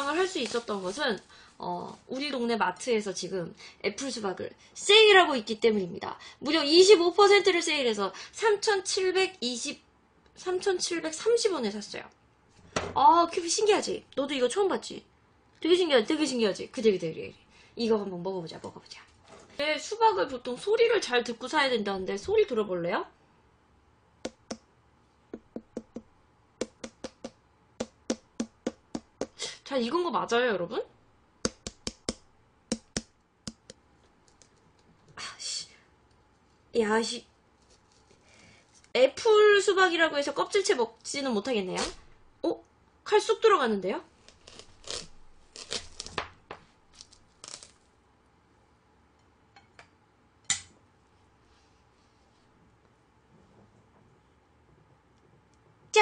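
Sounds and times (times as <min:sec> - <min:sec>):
fingers tapping a watermelon: 0:25.3 - 0:29.4, 0:31.4 - 0:33.8
knife cutting through melon rind: 0:44.2 - 0:46.2.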